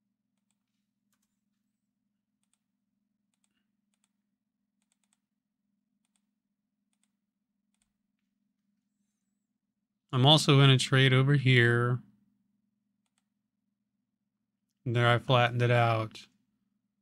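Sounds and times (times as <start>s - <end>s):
computer keyboard clicks: 4.8s - 5.2s.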